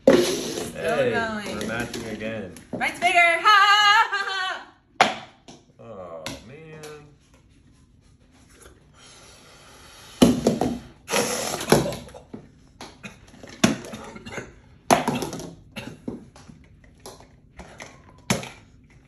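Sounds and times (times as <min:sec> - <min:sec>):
air rushing out of balloons: 0:00.0 - 0:00.8, 0:11.0 - 0:11.7.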